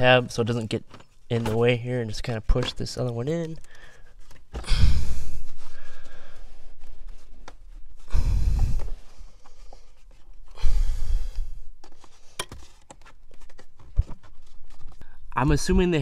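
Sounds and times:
heavy exhales of effort: 0:04.6 - 0:05.5.

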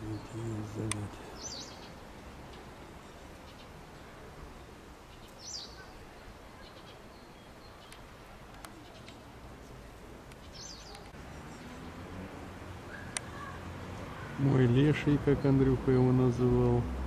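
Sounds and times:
high bird chirps: 0:01.3 - 0:02.0, 0:10.4 - 0:11.7.

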